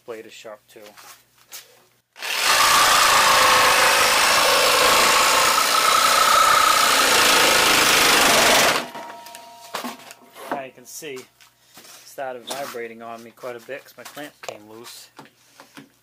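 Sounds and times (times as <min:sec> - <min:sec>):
board vibrating and chattering: 0:02.2 - 0:09.0
jigsaw cutting plywood: 0:02.2 - 0:09.0.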